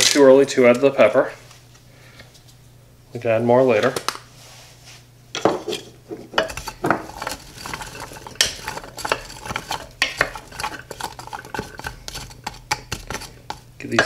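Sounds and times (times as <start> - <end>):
wooden spoon stirring vegetables: 6.2 - 14.0.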